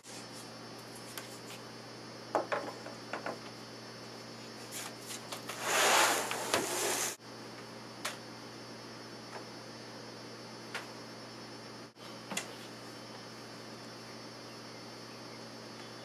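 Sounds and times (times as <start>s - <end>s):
wood sliding and rubbing: 5.5s - 7.2s.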